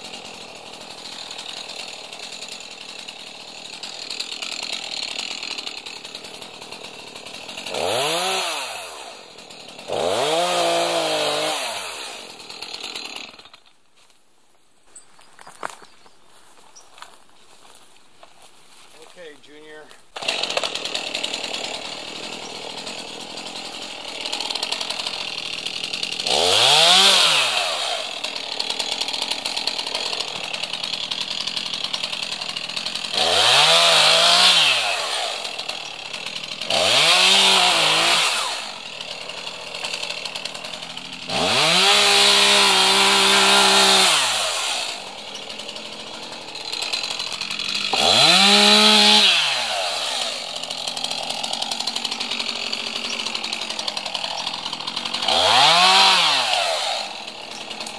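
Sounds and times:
chainsaw idling and revving: 0:00.0 - 0:13.8, 0:16.4 - 0:57.9.

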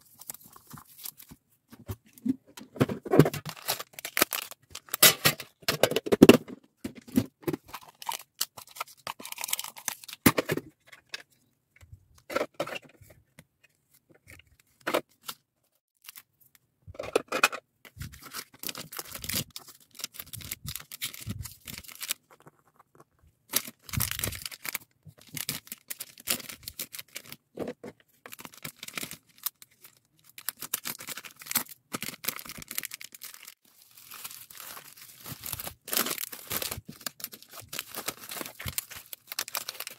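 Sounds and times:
plastic bags crinkling: 0:03.1 - 0:05.3, 0:23.5 - 0:27.4, 0:28.3 - 0:39.9.

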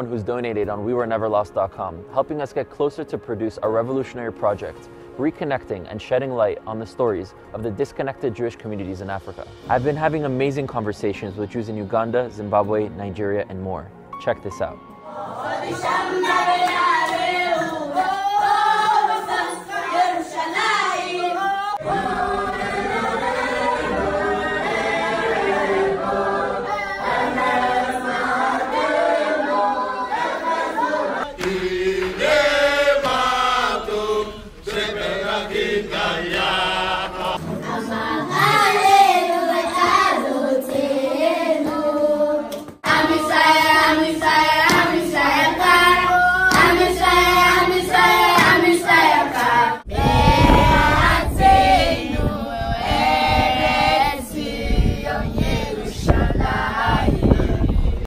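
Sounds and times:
group of people singing: 0:15.0 - 0:58.0
children singing: 0:15.1 - 0:58.0.

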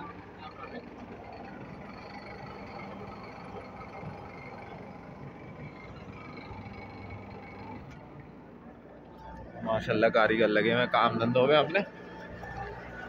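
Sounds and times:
wood lathe humming: 0:00.2 - 0:08.0.

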